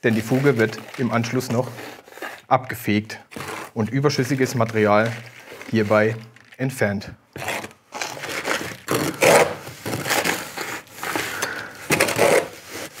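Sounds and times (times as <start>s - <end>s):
trowel scraping gritty mortar: 3.3s - 6.2s, 7.4s - 13.0s.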